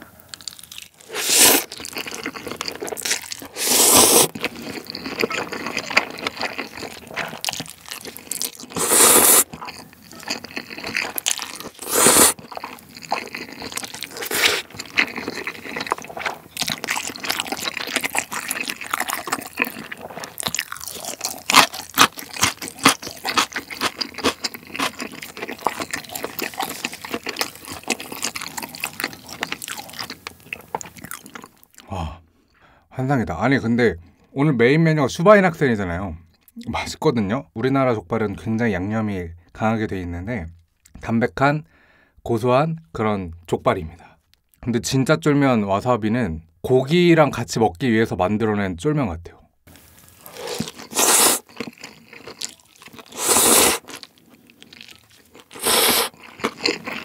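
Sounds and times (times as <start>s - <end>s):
wet chewing: 0.3s - 31.9s, 49.7s - 57.0s
noodle slurping: 1.0s - 30.1s, 50.2s - 54.0s, 54.7s - 57.0s.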